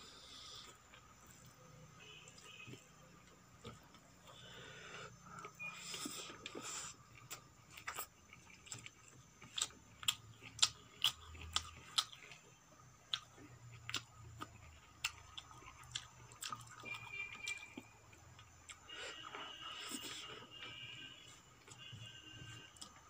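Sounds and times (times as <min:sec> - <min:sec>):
wet chewing: 0:05.3 - 0:18.8.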